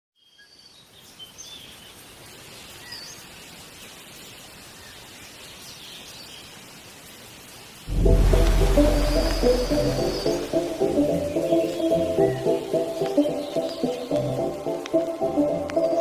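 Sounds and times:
outdoor hiss: 0.3 - 16.0
loud music: 7.9 - 12.9
birds chirping and whistling: 8.0 - 16.0.

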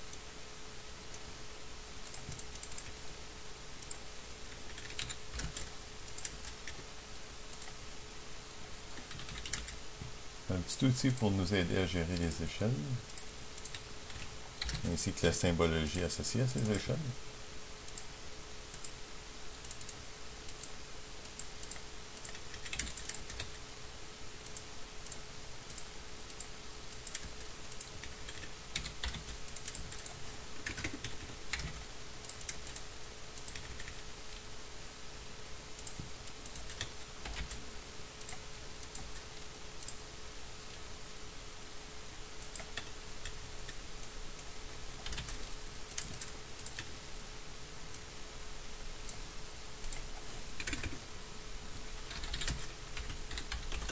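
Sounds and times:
faint hum and hiss: 0.0 - 53.9
keyboard keystrokes: 9.0 - 9.8, 45.0 - 46.9, 50.6 - 51.0, 52.0 - 53.9.

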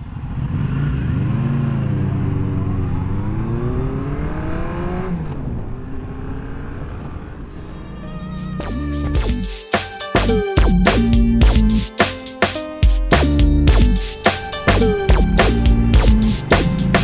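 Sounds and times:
motorcycle engine revving: 0.0 - 8.2, 13.2 - 17.0.

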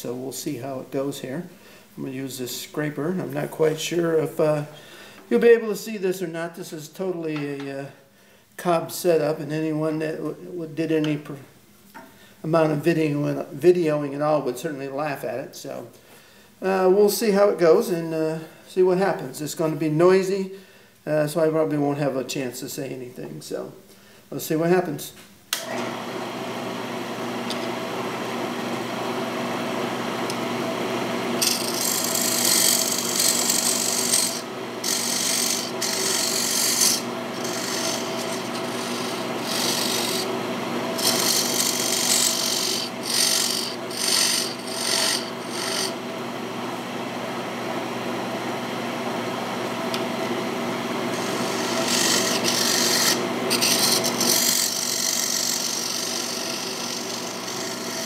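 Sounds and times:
wood lathe humming: 25.6 - 58.0
scraper rasping on spinning wood: 31.4 - 40.3, 40.9 - 46.0, 51.1 - 58.0.

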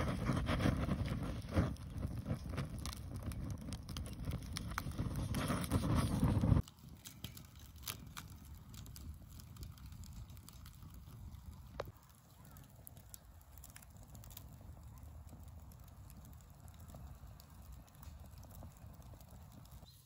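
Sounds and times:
fire rushing and crackling: 0.0 - 20.0.

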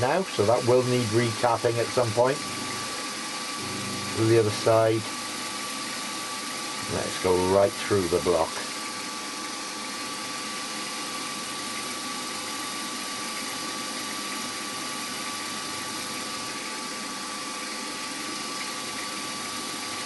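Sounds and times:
drill whine: 0.0 - 20.0
milling machine motor hum: 0.0 - 20.0.

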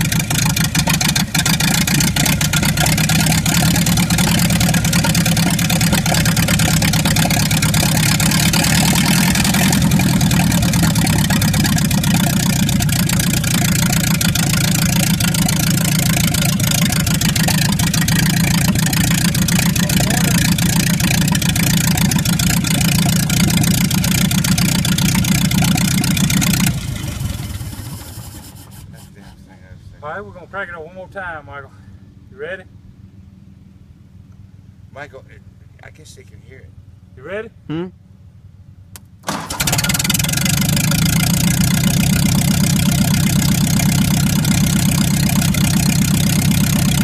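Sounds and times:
engine running steadily: 0.0 - 47.0.

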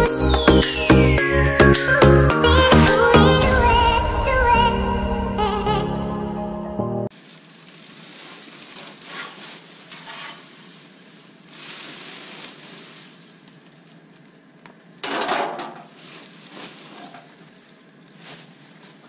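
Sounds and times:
plastic bag crinkling: 7.1 - 15.0, 15.7 - 19.0
dry leaves rustling and crackling: 7.1 - 19.0.

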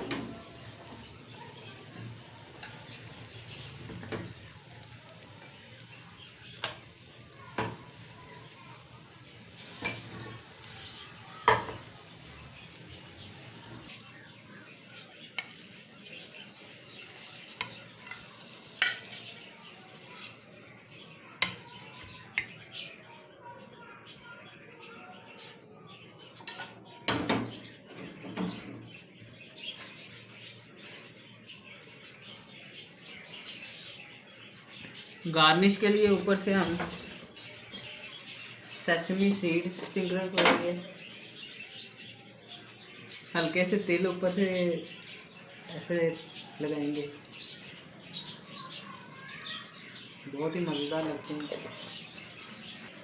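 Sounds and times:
frying pan and spoon clattering: 0.0 - 20.4, 21.0 - 22.8.

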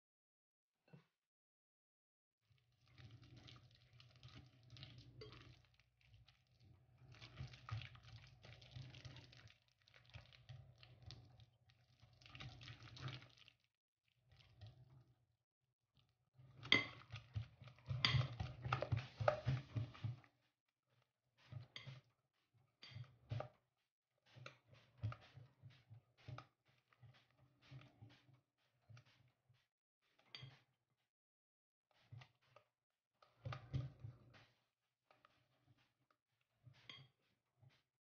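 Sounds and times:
wire whisk scraping glass bowl: 17.9 - 19.8.

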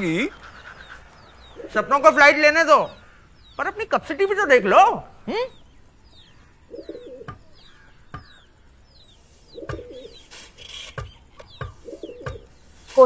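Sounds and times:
pigeons cooing: 0.0 - 2.1, 6.6 - 8.5, 9.4 - 12.6
small birds chirping: 0.0 - 13.0.

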